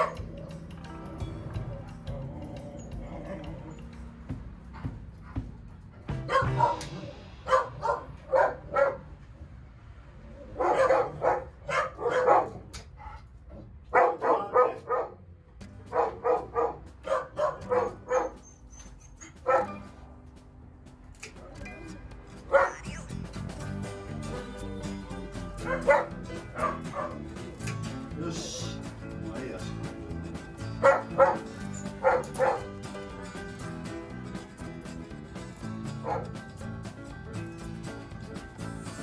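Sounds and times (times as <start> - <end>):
dog barking: 0.0 - 0.3, 6.2 - 9.1, 10.6 - 13.2, 13.9 - 15.2, 15.9 - 18.4, 19.4 - 19.8, 22.5 - 22.9, 25.6 - 27.2, 30.8 - 32.7, 36.0 - 36.3
faint background music: 0.0 - 9.1, 14.0 - 39.0.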